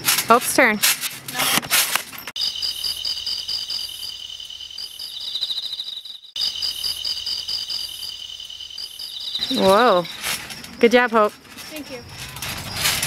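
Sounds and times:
insects trilling: 2.4s - 13.0s.

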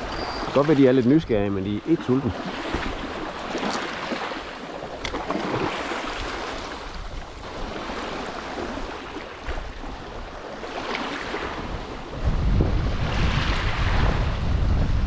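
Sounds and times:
small waves washing ashore: 0.0s - 15.0s
wind rumbling on microphone: 5.0s - 15.0s.

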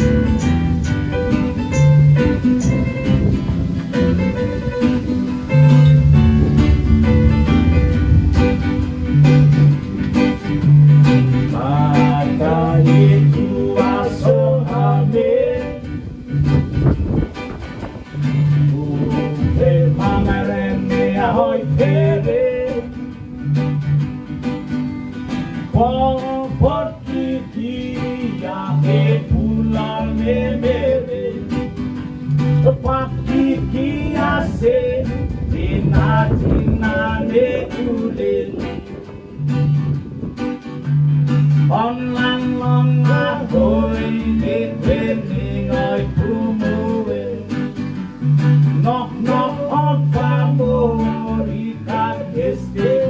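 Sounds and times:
acoustic guitar: 0.0s - 53.0s
bass line: 0.0s - 53.0s
electric guitar: 0.0s - 53.0s
keyboard: 0.0s - 53.0s
person singing: 11.5s - 16.1s, 18.2s - 23.0s, 25.7s - 31.5s, 32.6s - 39.2s, 41.7s - 47.5s, 48.8s - 53.0s.

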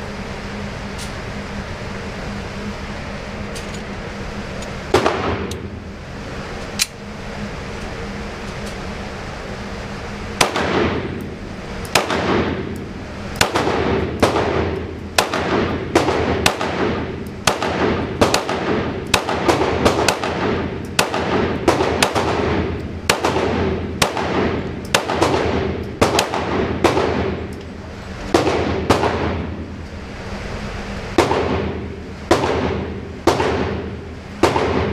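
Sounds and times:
ventilation hum: 0.0s - 34.9s
pistol shots echoing: 10.4s - 11.2s, 11.9s - 12.7s, 13.4s - 27.5s, 28.3s - 29.6s, 31.2s - 34.9s.

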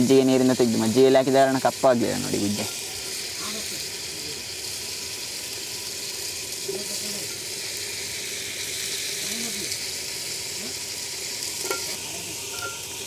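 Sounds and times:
onions sizzling in oil: 0.0s - 13.0s.

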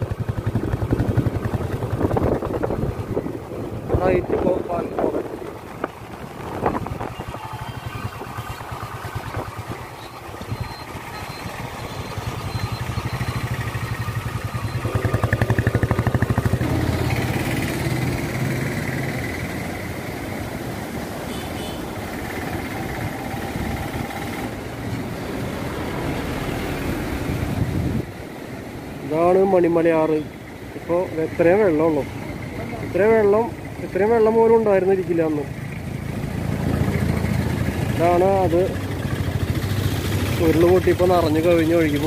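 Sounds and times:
engine pulsing hum: 6.7s - 20.2s.

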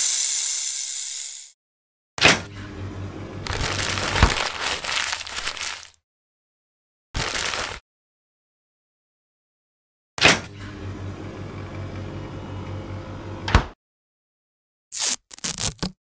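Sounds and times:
dry straw crackling and rustling: 3.5s - 6.0s, 7.2s - 7.8s
fridge door opening click: 13.4s - 13.8s.

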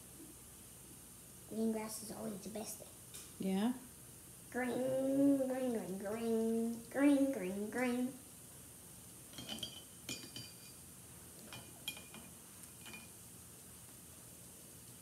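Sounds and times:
paintbrush clinking against glass jar: 9.4s - 10.8s, 11.5s - 13.2s.

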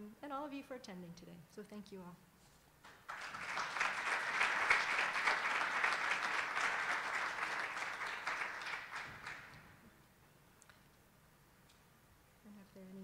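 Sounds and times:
audience applauding: 2.9s - 9.8s.

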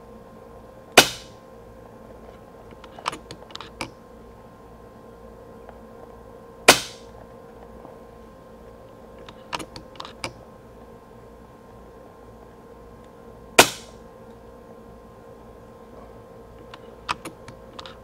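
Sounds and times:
air rifle shot cracks: 1.0s - 1.4s, 6.7s - 7.1s, 13.6s - 14.0s.

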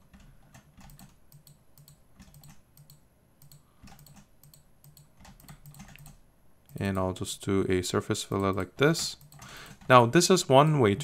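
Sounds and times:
mouse and keyboard clicking: 0.1s - 6.9s.

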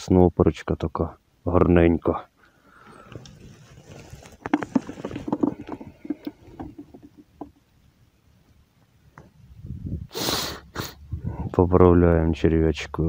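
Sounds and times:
dry reeds and twigs rustling: 3.0s - 7.1s.

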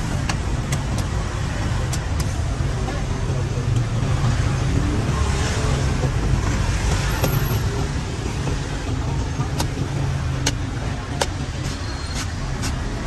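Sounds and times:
street traffic rumble: 0.0s - 13.0s
cleaver chopping coconut husk: 0.2s - 2.6s, 9.4s - 12.9s.

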